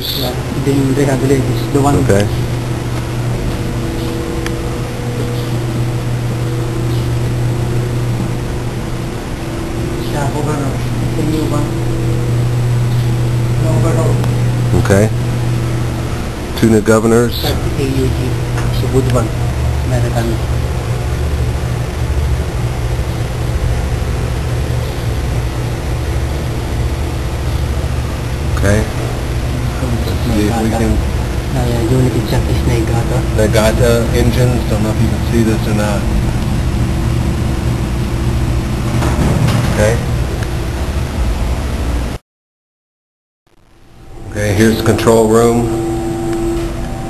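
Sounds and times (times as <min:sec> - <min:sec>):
constant higher tones: 0:00.0 - 0:42.1, 0:43.7 - 0:47.0
plant machinery droning: 0:00.0 - 0:42.2, 0:43.7 - 0:47.0.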